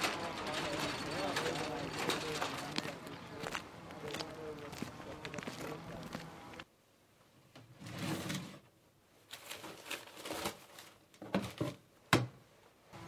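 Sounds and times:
rustling crumpled newspaper: 0:00.0 - 0:06.2, 0:09.2 - 0:11.7.

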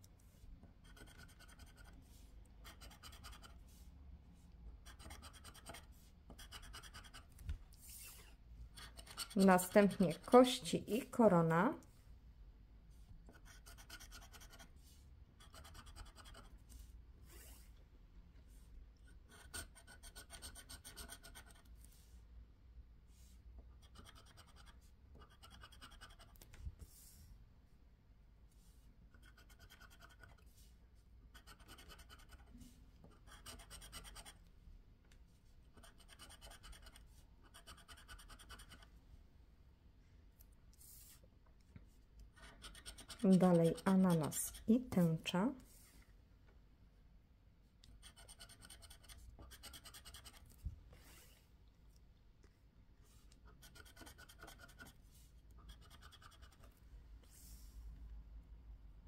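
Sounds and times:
scraper scratching lottery ticket: 0:08.8 - 0:10.6, 0:42.4 - 0:44.9, 0:53.6 - 0:54.9.

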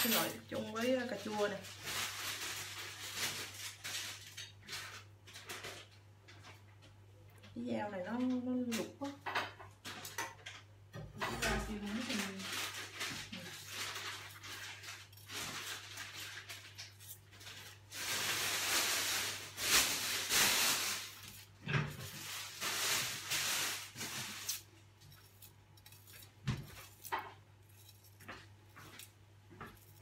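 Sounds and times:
loud hissy rustling: 0:17.9 - 0:24.7.

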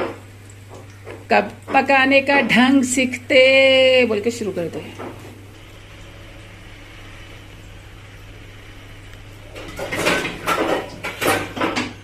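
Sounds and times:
food frying in oil: 0:00.0 - 0:12.0
low hum: 0:05.4 - 0:11.0.

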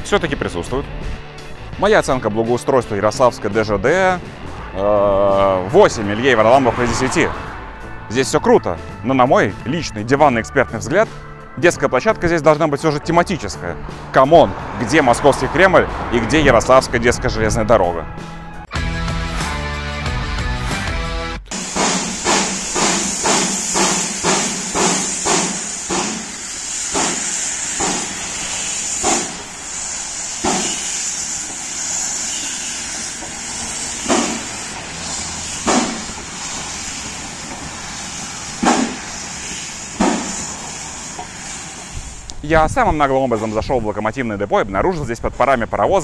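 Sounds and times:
steam hissing: 0:21.5 - 0:42.4
steam locomotive puffs: 0:21.5 - 0:42.4.

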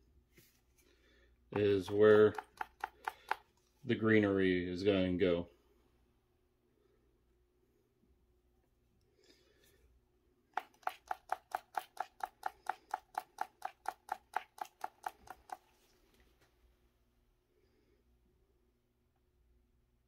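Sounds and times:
container tapped rapidly: 0:01.6 - 0:03.5, 0:10.5 - 0:15.7.

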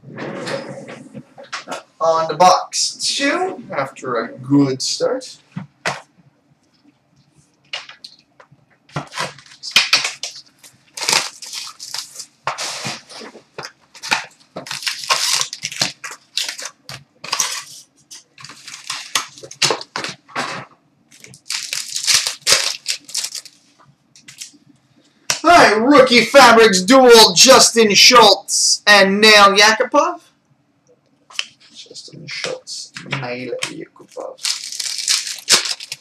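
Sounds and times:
plastic wrapping crinkling and tearing: 0:08.9 - 0:20.2, 0:21.1 - 0:24.6, 0:34.1 - 0:36.0.

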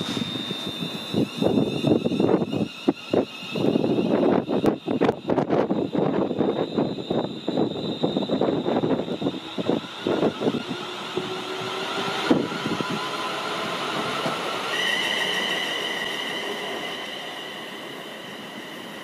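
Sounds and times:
steady high whine: 0:00.0 - 0:19.0
train rushing past: 0:07.7 - 0:19.0.

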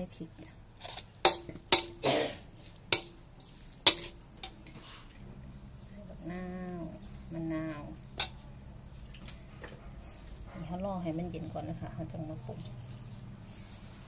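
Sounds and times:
metal spoon clinking on wok: 0:01.2 - 0:02.0, 0:02.9 - 0:03.2, 0:03.9 - 0:04.7.

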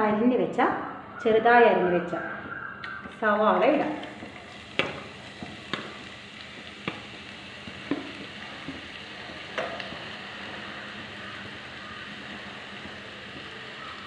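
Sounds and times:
onions sizzling in hot oil: 0:02.9 - 0:14.0.

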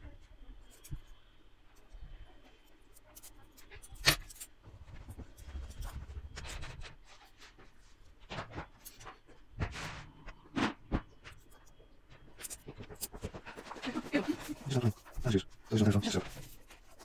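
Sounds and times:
metal parts clinking and scraping: 0:02.9 - 0:04.6.

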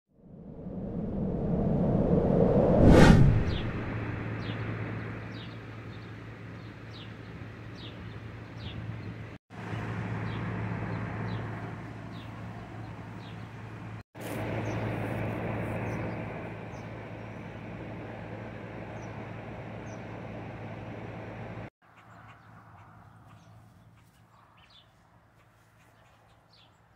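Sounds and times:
bird chirping: 0:04.3 - 0:09.3, 0:21.9 - 0:26.9
steady low hum: 0:10.2 - 0:21.7.

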